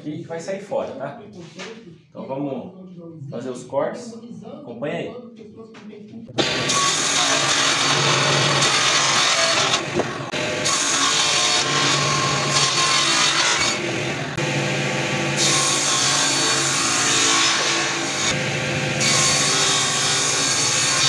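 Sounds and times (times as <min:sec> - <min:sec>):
table saw cutting board: 0:06.3 - 0:21.0.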